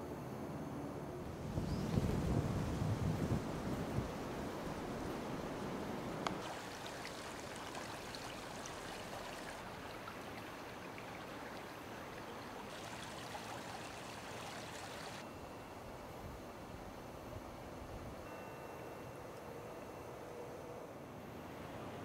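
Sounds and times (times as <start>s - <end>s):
wind buffeting microphone: 1.2s - 6.4s
creek flowing over rocks: 6.4s - 15.2s.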